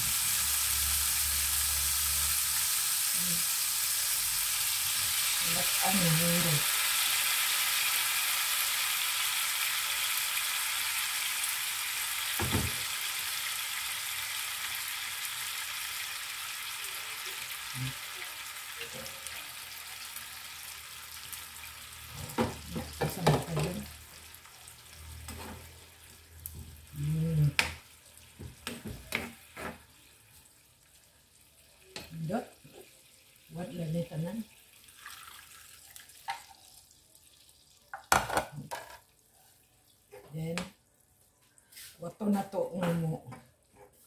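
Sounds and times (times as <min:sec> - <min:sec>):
meat sizzling in a frying pan: 0:00.0 - 0:36.9
broth being ladled in: 0:34.8 - 0:36.8.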